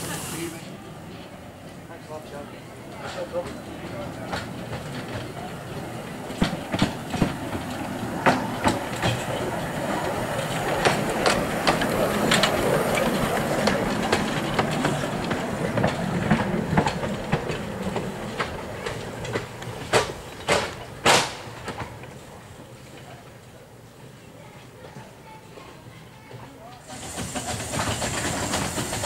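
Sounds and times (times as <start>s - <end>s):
steam hissing: 0.0s - 1.0s, 4.3s - 20.5s, 26.8s - 29.0s
train wheels clicking over rail joints: 2.9s - 23.3s, 24.8s - 29.0s.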